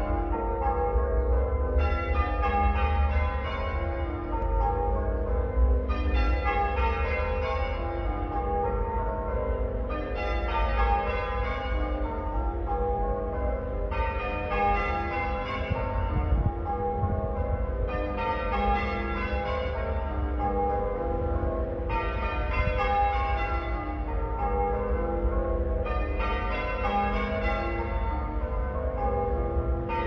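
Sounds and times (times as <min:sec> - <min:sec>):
half-muffled church bells ringing: 0:00.0 - 0:30.0.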